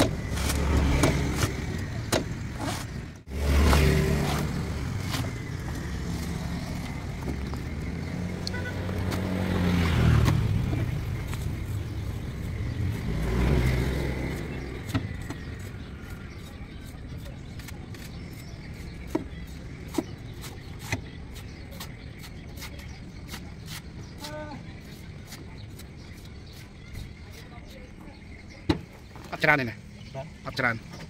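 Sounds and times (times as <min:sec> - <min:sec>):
vehicle engine revving: 0:00.0 - 0:16.4.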